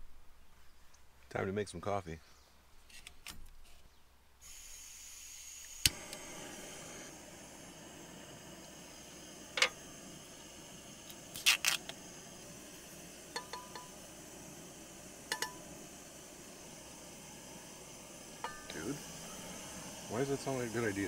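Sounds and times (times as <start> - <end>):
faint steady hiss: 0.0 - 21.0
metal cups clinking: 13.3 - 13.9, 15.3 - 15.6, 18.4 - 18.8.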